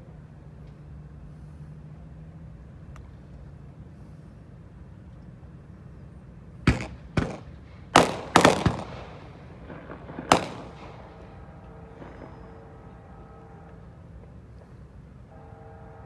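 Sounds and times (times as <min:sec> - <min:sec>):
low steady rumble: 0:00.0 - 0:16.0
sharp bangs: 0:06.6 - 0:14.4.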